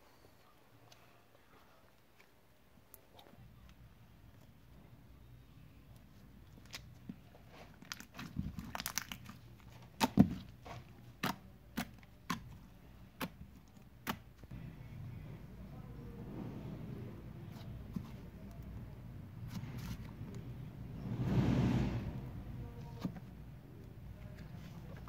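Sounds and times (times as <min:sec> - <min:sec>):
slime crackling and popping: 0:07.8 - 0:10.4.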